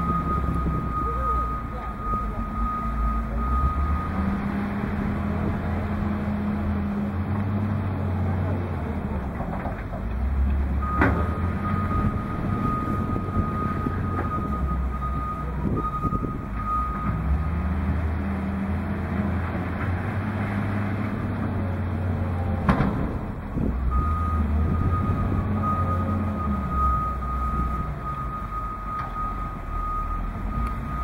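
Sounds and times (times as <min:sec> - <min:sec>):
reversing alarm beeping: 0:00.0 - 0:04.4, 0:10.8 - 0:17.3, 0:23.9 - 0:31.0
diesel engine running: 0:00.0 - 0:31.0.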